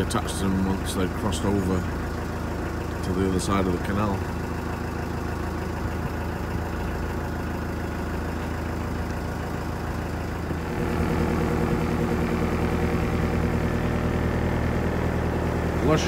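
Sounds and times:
boat engine running: 0.0 - 16.0.

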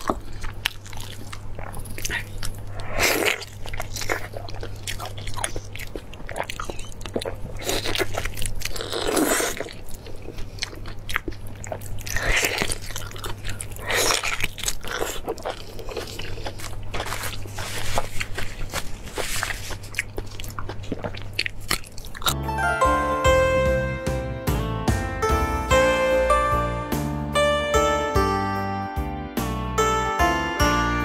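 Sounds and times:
biting and chewing meat: 0.0 - 22.4.

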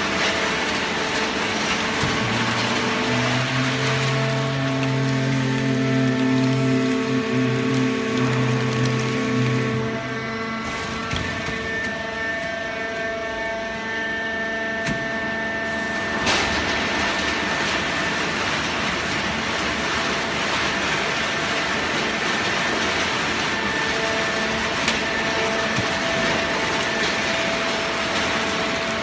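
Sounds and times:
baler machine hum: 0.0 - 29.0.

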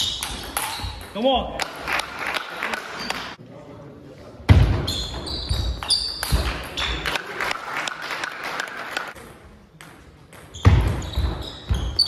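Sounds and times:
crowd applauding: 7.0 - 9.2.

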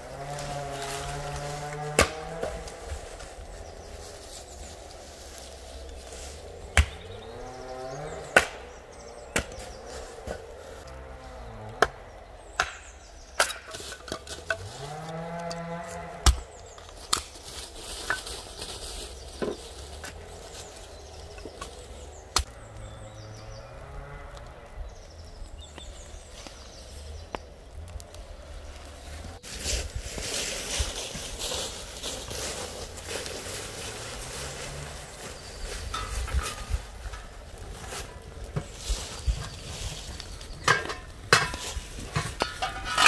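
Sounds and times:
axe splitting firewood: 0.8 - 2.9, 6.7 - 7.1, 8.2 - 10.5, 11.7 - 18.2, 39.4 - 43.0.

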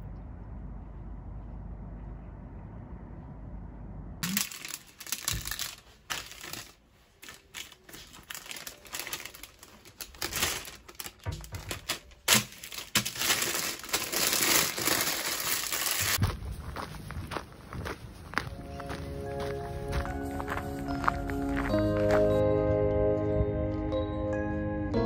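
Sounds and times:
crisp packet crinkling: 4.2 - 16.2.

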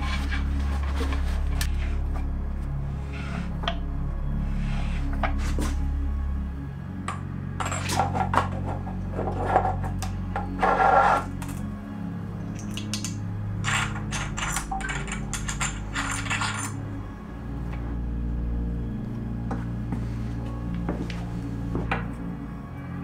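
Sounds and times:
soft background music: 0.0 - 23.0
small metal parts clinking: 7.6 - 8.6, 12.6 - 16.8.

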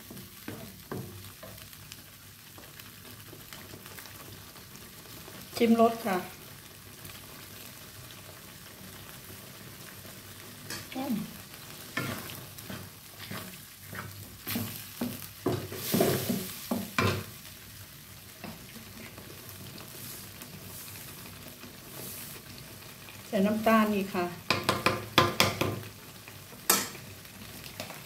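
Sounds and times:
sauce sizzling: 0.0 - 28.0
wooden spatula scraping a wok: 10.2 - 17.4, 18.2 - 23.0.

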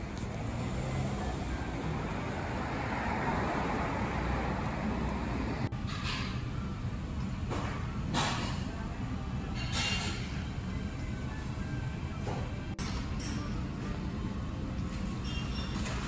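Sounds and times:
vehicle passing: 0.0 - 5.7
road traffic noise: 0.0 - 16.0.

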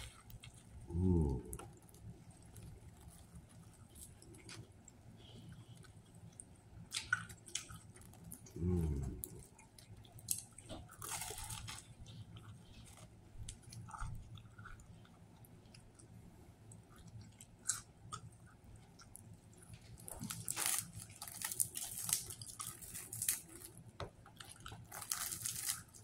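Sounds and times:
wet chewing of sandwich: 0.0 - 26.0
low throat hum: 0.8 - 1.6, 8.5 - 9.5.

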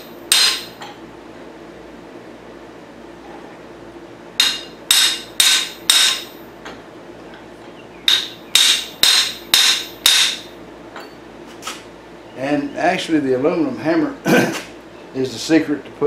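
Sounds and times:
hammer striking metal with ringing: 0.0 - 1.0, 4.4 - 6.4, 8.1 - 11.2.

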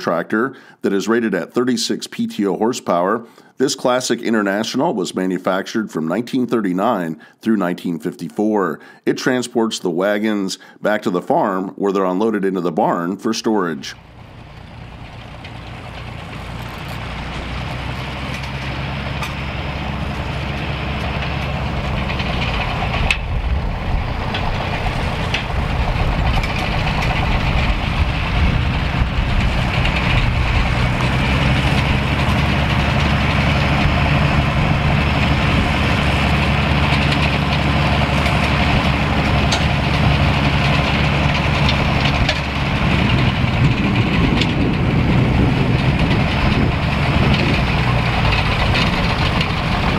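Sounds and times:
tractor engines running: 13.6 - 49.9
metallic clank: 14.1 - 23.3, 35.5 - 42.6.

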